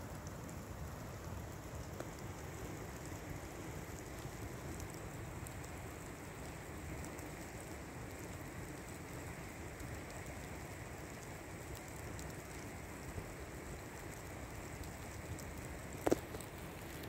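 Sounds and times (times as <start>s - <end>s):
fire crackling: 0.0s - 17.0s.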